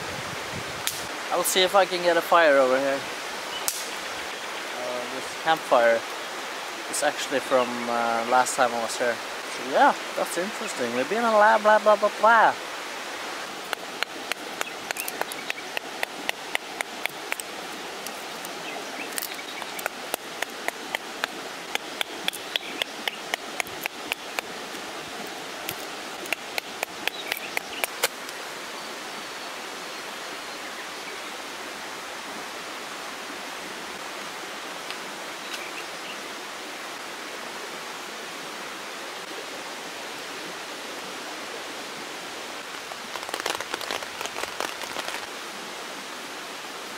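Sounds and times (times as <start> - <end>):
river rushing: 0.0 - 46.9
knife cracking dry wood: 3.7 - 3.9, 13.7 - 18.5, 25.6 - 28.2.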